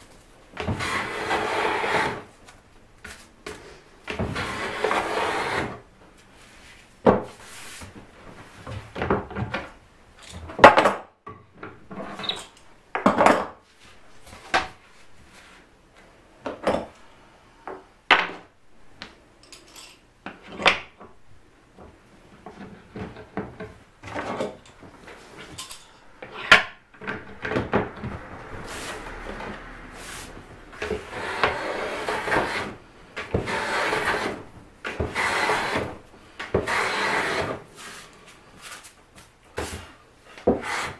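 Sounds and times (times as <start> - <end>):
hand plane shaving wood: 0.6 - 2.3, 4.2 - 5.8, 30.0 - 38.0, 40.5 - 40.9.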